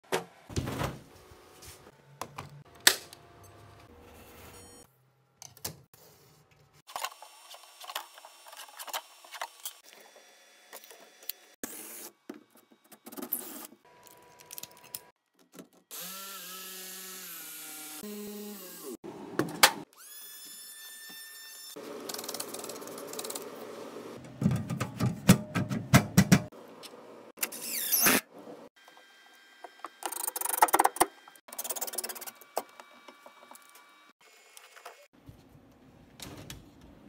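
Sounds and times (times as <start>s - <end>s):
handling knocks and clicks: 24.2s - 26.5s.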